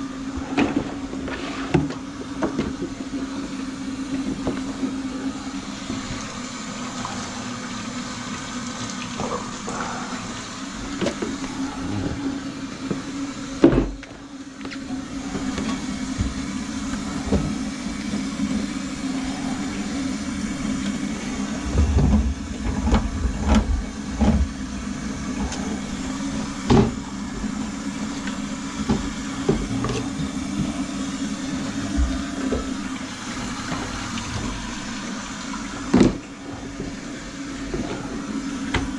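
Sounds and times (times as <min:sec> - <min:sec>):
drain cleaning machine humming: 0:00.0 - 0:38.9.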